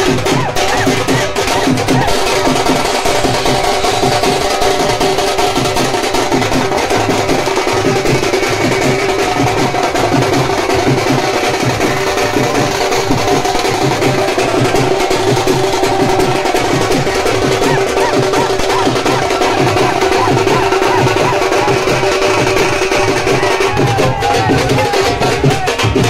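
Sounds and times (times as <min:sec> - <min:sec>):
dhol drums beating: 0:00.0 - 0:26.0
steady held tones: 0:00.0 - 0:26.0.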